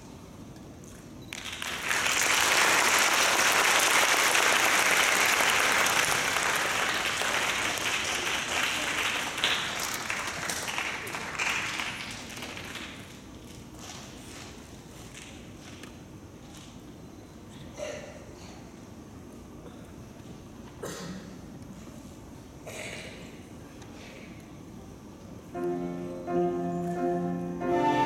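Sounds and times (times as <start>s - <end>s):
audience applauding: 1.3s - 13.1s.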